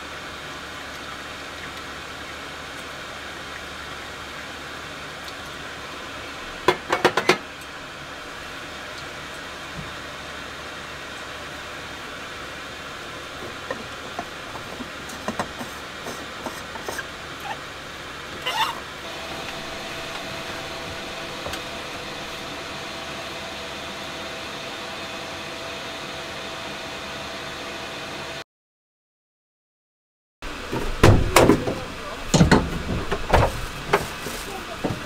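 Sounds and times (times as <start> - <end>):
steady hiss: 7.6 - 25.5.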